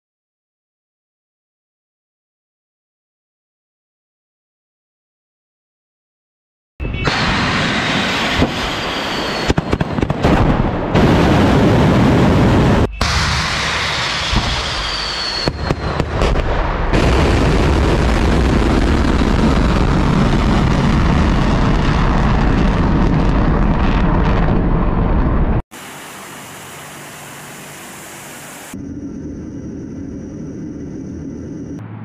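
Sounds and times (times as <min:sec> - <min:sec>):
turboprop engines running: 0:25.7 - 0:32.0.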